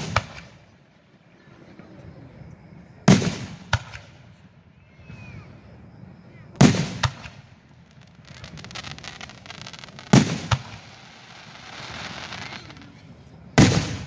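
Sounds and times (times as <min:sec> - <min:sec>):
firework bangs: 0:00.0 - 0:00.6, 0:03.0 - 0:04.2, 0:06.6 - 0:14.0
firework crackling: 0:00.0 - 0:00.6, 0:06.6 - 0:14.0
faint firework hiss: 0:00.0 - 0:00.8, 0:03.0 - 0:14.0.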